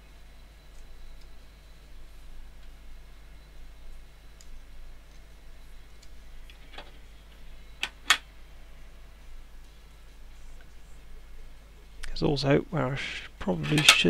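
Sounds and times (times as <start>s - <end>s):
plastic parts clicking and tapping: 13.6s - 14.0s.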